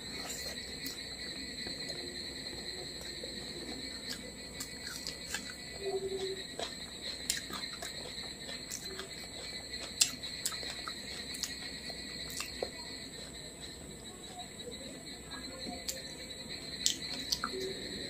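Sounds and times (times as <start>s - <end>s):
high-pitched whine: 0.0s - 18.0s
mouth clicks and smacks chewing: 4.0s - 5.6s, 6.2s - 13.7s, 16.8s - 17.6s.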